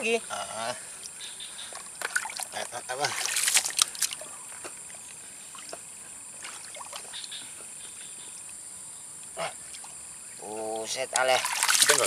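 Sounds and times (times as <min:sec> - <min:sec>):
steady high hiss: 0:00.0 - 0:12.0
water sloshing and splashing: 0:02.0 - 0:07.3, 0:11.1 - 0:12.0.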